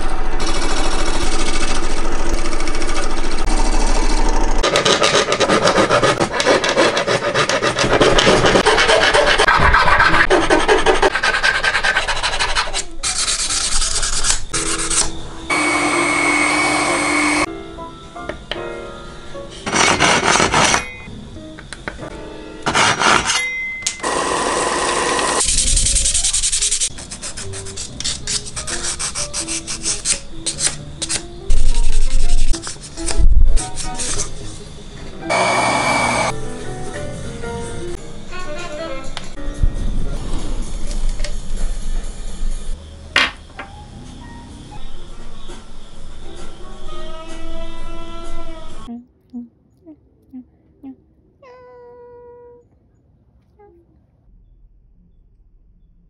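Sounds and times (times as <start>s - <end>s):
loud low rumbles: 0.0s - 4.7s
file rasping on wood: 4.6s - 15.0s, 19.7s - 20.8s
sandpaper rubbing on wood: 4.6s - 15.1s, 25.4s - 34.5s
small drill humming: 15.5s - 17.5s, 24.0s - 25.5s, 35.3s - 36.4s.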